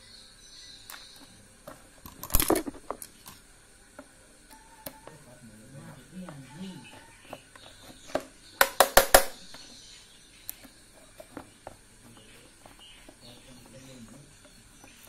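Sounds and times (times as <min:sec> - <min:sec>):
plastic clicks: 0:02.0 - 0:03.4
sharp knocks on plastic: 0:08.0 - 0:09.4.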